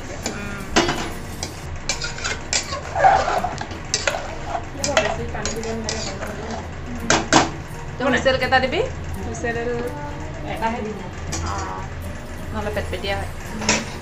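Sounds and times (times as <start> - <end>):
rice sizzling in pot: 0.0 - 9.0
spoon scraping and knocking pot: 0.2 - 7.5.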